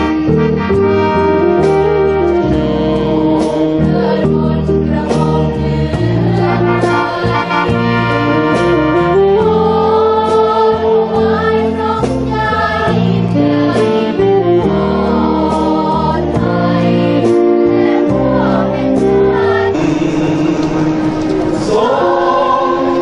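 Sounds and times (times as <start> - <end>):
instrumental accompaniment with beat: 0.0 - 23.0
group singing together: 2.3 - 23.0
man singing into a microphone: 19.7 - 23.0.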